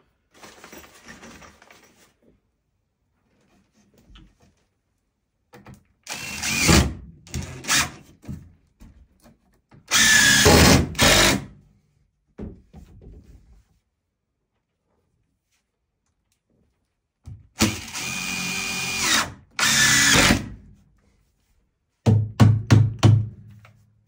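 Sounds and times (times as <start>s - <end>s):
impact driver driving screws: 6.1s - 8.0s, 9.9s - 11.5s, 17.6s - 20.5s.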